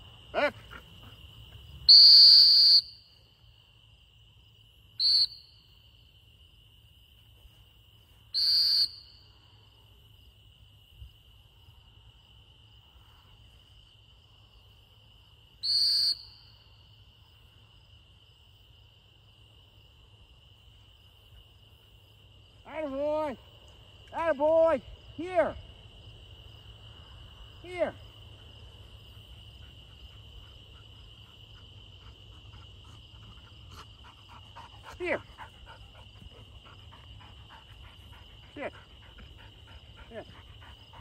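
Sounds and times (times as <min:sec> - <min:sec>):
cricket trill: 0:00.0 - 0:41.0
dog-training whistle blasts: 0:01.9 - 0:03.2, 0:05.0 - 0:05.6, 0:08.3 - 0:09.2, 0:15.6 - 0:16.5.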